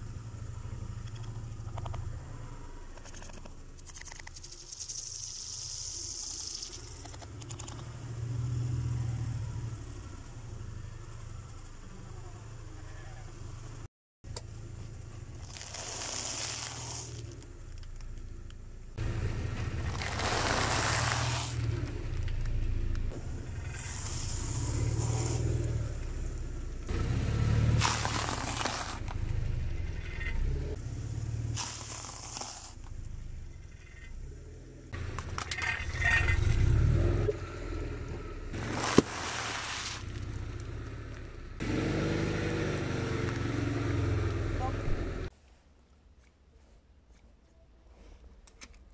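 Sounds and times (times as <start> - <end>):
car engine and tyre rumble: 0.0 - 48.9
objects crackling and scraping: 15.3 - 18.6, 19.5 - 26.2, 27.7 - 30.6, 31.6 - 34.2, 35.0 - 36.7, 38.6 - 40.8.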